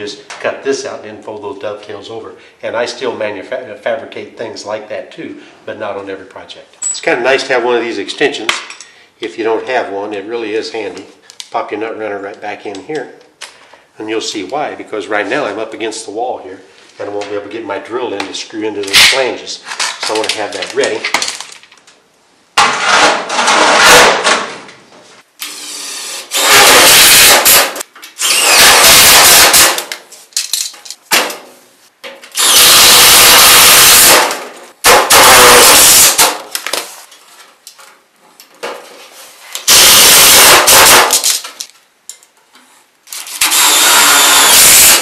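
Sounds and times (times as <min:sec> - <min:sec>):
cordless drill driving screws: 0:25.4 - 0:29.7, 0:32.4 - 0:34.2, 0:34.9 - 0:36.3, 0:39.7 - 0:41.1, 0:43.4 - 0:45.0.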